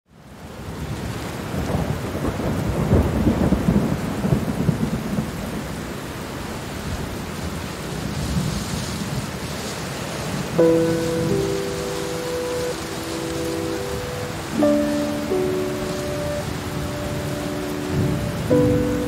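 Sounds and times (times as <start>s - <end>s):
heavy rain: 0.1s - 19.0s
rolling thunder: 1.5s - 5.8s, 12.7s - 19.0s.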